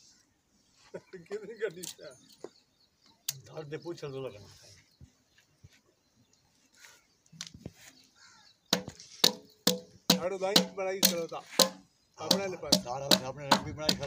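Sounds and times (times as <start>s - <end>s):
sharp knocks on engine part: 8.7s - 14.0s
man talking: 10.1s - 11.6s, 12.2s - 14.0s.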